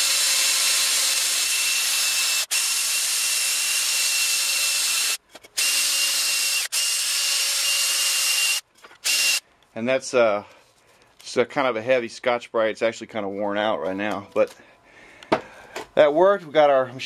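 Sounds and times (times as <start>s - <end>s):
cordless drill whining: 0.0s - 9.4s.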